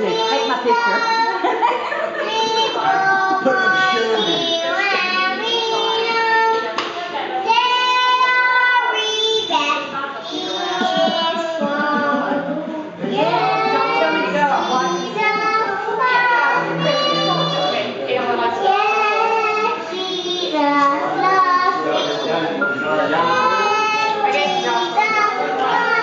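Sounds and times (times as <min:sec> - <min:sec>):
girl singing: 0:07.4 - 0:17.9, 0:18.6 - 0:26.0
electronic keyboard notes: 0:16.6 - 0:17.9.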